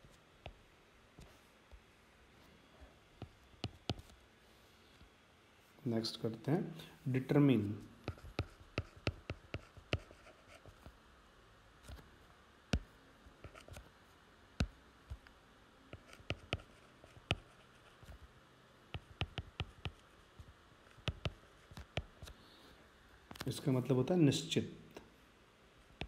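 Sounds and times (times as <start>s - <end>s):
pen tapping on writing tablet: 3.2s - 4.1s, 8.0s - 10.2s, 18.9s - 20.0s, 21.0s - 22.2s.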